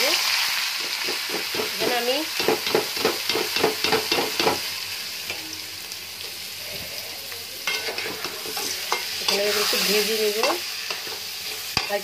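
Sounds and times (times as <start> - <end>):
oil sizzling: 0.0 - 12.0
spatula scraping a pan: 7.6 - 12.0.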